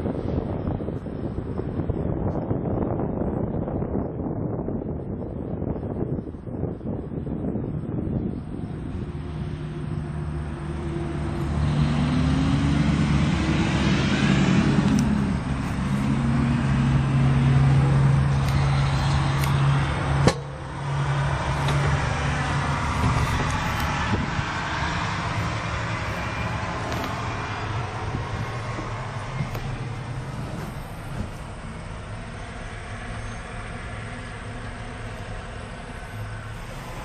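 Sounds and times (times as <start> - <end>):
tractor diesel engine idling: 14.5 - 37.0.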